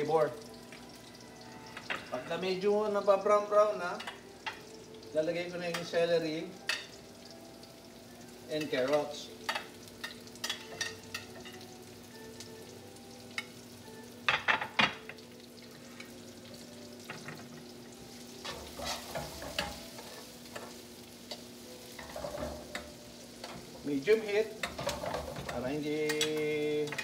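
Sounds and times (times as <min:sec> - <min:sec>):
vegetables sizzling in oil: 0:00.0 - 0:27.0
metal tongs clacking and scraping: 0:24.6 - 0:27.0.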